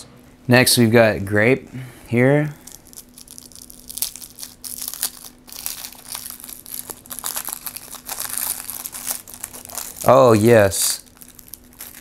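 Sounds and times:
plastic wrapper crinkling and tearing: 2.6 - 12.0.

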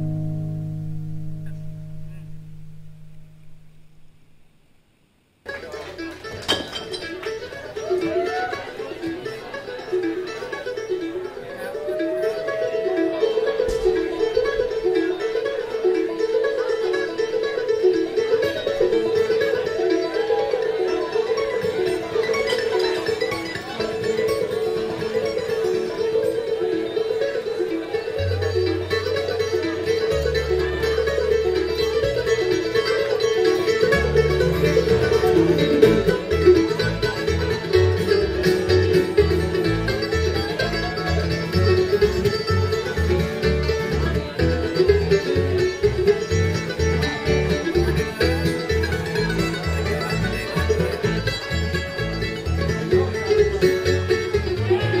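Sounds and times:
bass line: 0.0 - 4.6
picked string instruments: 0.0 - 4.8, 5.4 - 55.0.

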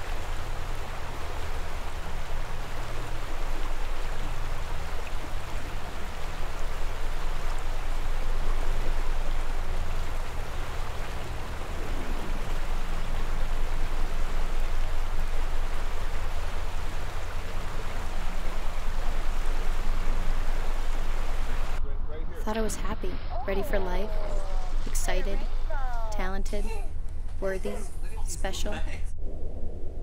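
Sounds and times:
water rushing over rocks: 0.0 - 21.8.

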